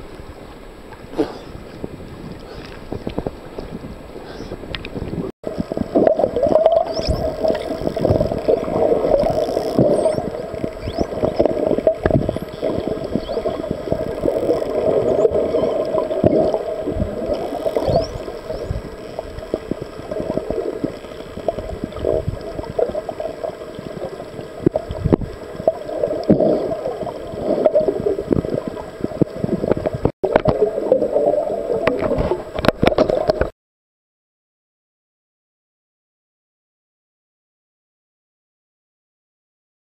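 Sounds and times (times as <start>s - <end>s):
underwater water rush: 0.0s - 33.5s
dolphin whistles: 6.8s - 7.3s, 9.9s - 11.1s.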